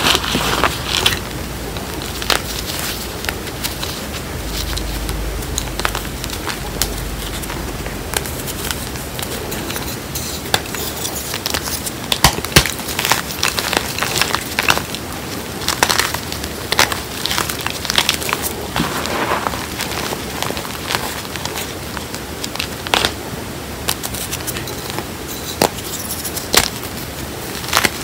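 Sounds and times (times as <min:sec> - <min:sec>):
hands crunching chalk: 0:00.0 - 0:23.2, 0:23.8 - 0:28.0
sharp chalk snaps: 0:23.8 - 0:28.0.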